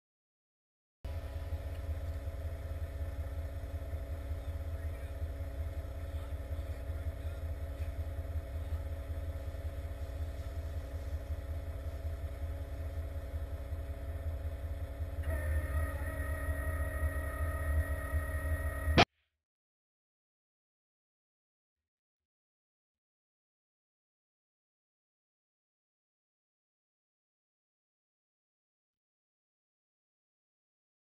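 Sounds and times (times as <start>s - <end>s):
truck engine idling: 1.1s - 19.0s.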